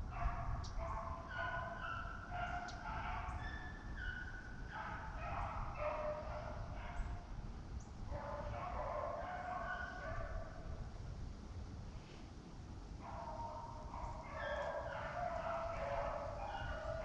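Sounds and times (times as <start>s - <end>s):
wind rumbling on microphone: 0.0s - 17.0s
dogs baying: 0.1s - 7.2s, 8.1s - 10.6s, 13.0s - 17.0s.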